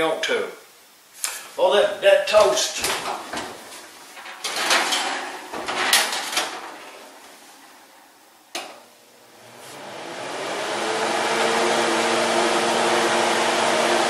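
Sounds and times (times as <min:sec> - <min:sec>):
oven door and baking tray clatter: 0:02.3 - 0:07.9.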